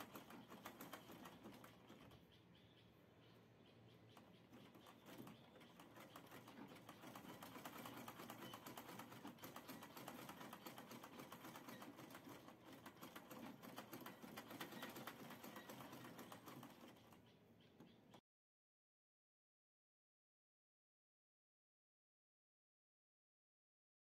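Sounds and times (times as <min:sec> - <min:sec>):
sewing machine clicking: 0:00.0 - 0:02.3, 0:04.2 - 0:17.2.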